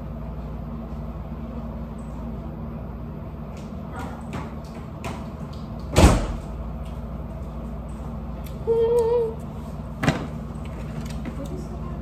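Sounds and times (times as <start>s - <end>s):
steady low hum: 0.0s - 12.0s
girl humming a wavering note: 8.5s - 9.4s.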